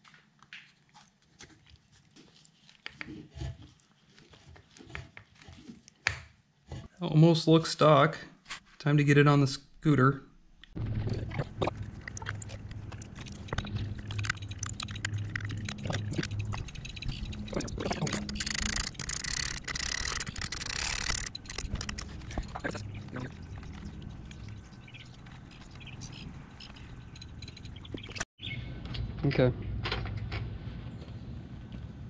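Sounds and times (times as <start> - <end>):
low hum: 10.6 - 32.0.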